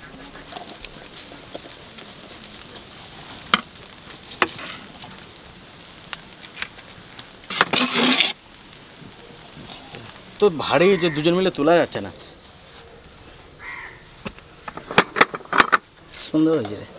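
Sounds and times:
faint sizzle: 0.0s - 14.7s
metal clatter: 14.7s - 15.9s.

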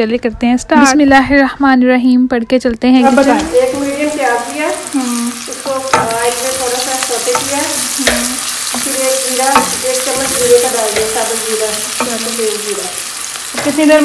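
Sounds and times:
onions sizzling in oil: 3.0s - 14.0s
spoon knocking on pot: 5.8s - 12.6s.

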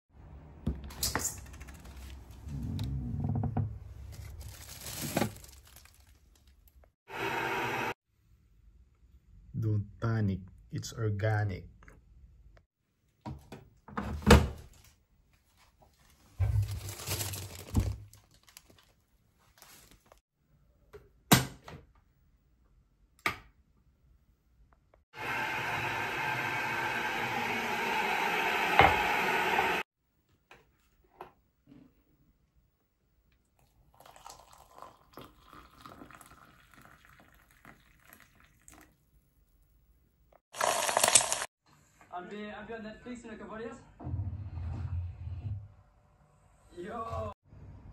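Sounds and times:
plastic bag crinkling: 4.1s - 6.8s, 16.5s - 20.2s, 40.6s - 41.5s
hot water pouring into mug: 33.6s - 39.0s, 40.6s - 41.5s
egg sizzling in a pan: 40.6s - 41.5s.

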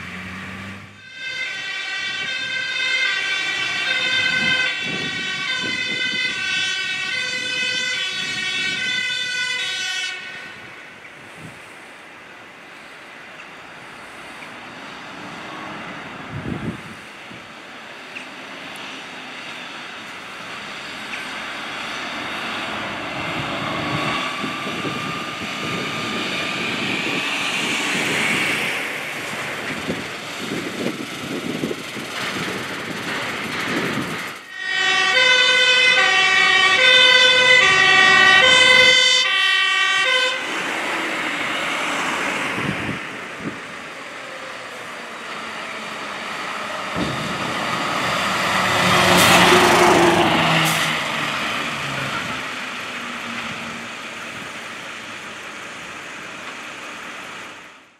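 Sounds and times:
fire engine passing: 0.0s - 57.9s
two-tone siren: 0.9s - 10.9s, 19.3s - 28.6s, 34.5s - 54.5s.

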